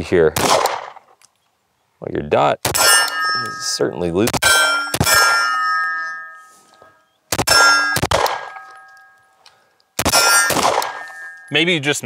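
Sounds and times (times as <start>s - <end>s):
pistol shots: 0.4s - 1.0s, 2.6s - 3.0s, 4.3s - 5.3s, 7.3s - 8.7s, 10.0s - 11.4s
steel target ringing: 2.7s - 9.4s, 10.0s - 12.0s.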